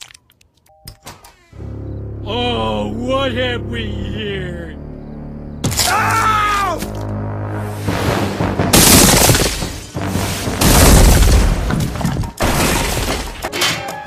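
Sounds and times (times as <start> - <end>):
background music: 1.6 - 14.0
explosion booms: 8.6 - 11.8
buildings collapsing: 8.7 - 14.0.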